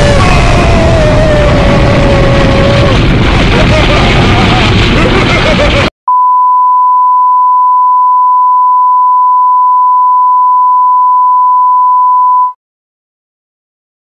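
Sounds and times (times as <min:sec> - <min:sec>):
steady pure test tone beep: 0:06.1 - 0:12.6.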